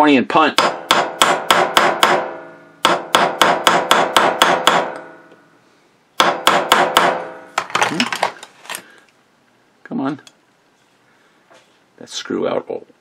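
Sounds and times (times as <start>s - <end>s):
hammer tapping metal punch: 0.6s - 5.4s.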